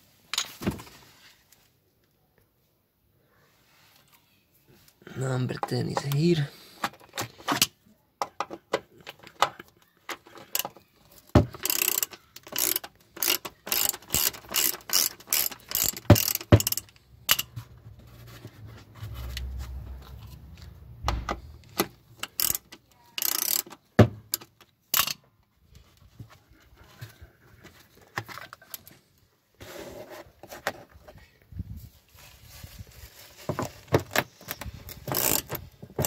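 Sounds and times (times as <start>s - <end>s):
ratchet pawl clicking: 11.6s - 17.5s, 22.2s - 23.7s, 24.9s - 25.2s, 34.9s - 35.6s.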